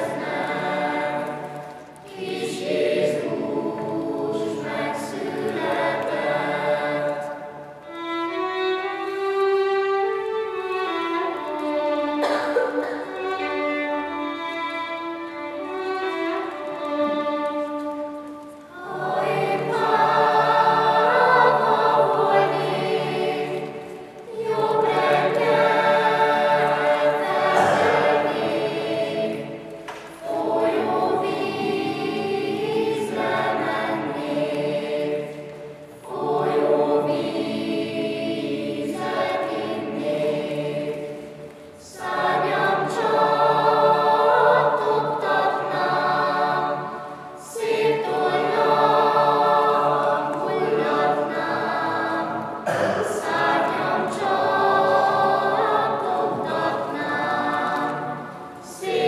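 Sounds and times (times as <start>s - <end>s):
youth choir singing unaccompanied: 0.0s - 59.0s
solo violin melody: 7.0s - 12.2s, 13.0s - 34.2s.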